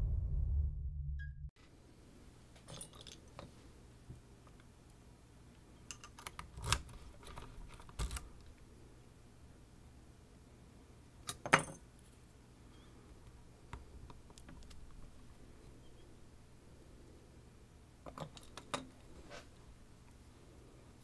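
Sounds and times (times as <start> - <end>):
lock and picks clicking: 5.8 - 8.5, 18.0 - 19.0.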